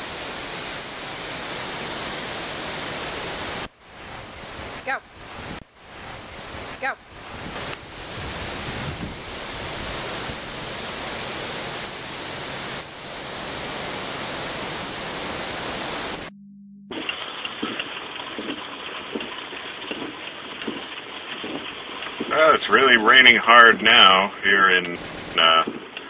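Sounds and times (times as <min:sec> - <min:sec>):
heavy rain heard from inside car: 0:00.0 - 0:04.2, 0:07.3 - 0:16.3
wind through trees: 0:00.0 - 0:16.3, 0:24.8 - 0:26.0.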